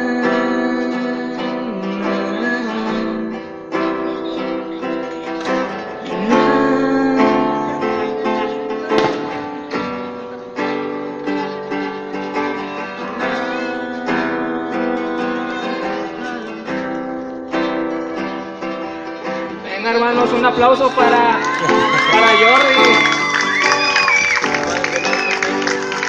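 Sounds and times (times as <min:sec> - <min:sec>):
acoustic guitar strumming: 0:00.0 - 0:26.0
sharp knock: 0:09.0 - 0:09.3.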